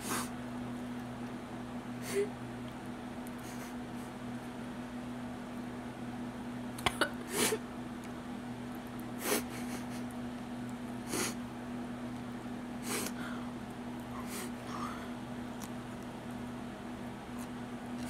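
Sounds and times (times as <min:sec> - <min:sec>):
steady low hum: 0:00.0 - 0:18.0
woman sobbing and sniffling: 0:02.0 - 0:02.3, 0:09.2 - 0:10.1.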